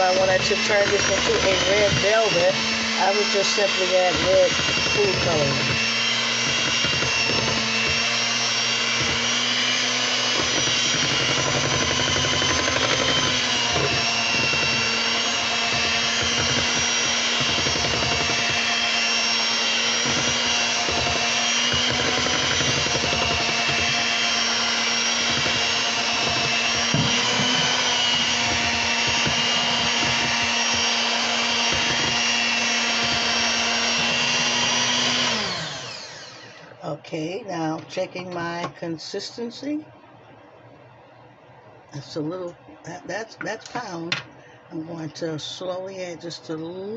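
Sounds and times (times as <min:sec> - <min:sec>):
electric hand mixer whirring: 0:00.0 - 0:36.8.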